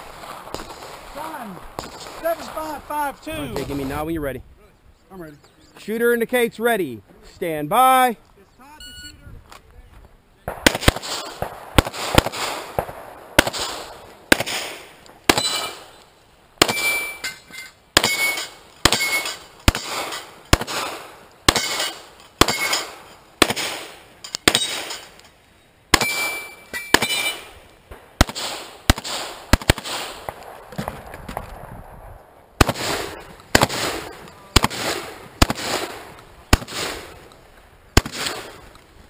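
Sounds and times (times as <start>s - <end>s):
metallic ring of steel target: 16.7s - 19.4s, 26.0s - 27.4s
handgun shots: 21.5s - 25.1s, 26.0s - 27.4s.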